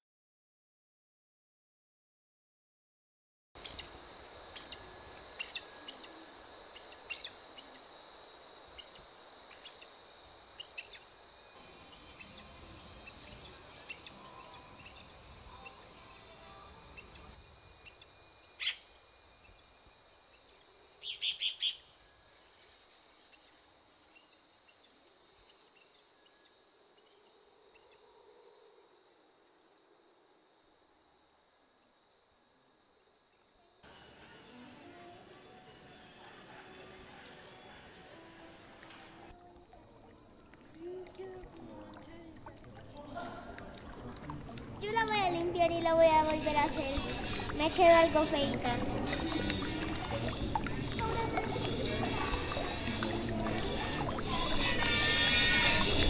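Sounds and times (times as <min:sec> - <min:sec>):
high-pitched insect hum: 0:03.6 - 0:35.6, 0:39.3 - 0:56.0
birds chirping: 0:44.9 - 0:56.0
loud sharp bird call: 0:54.4 - 0:56.0.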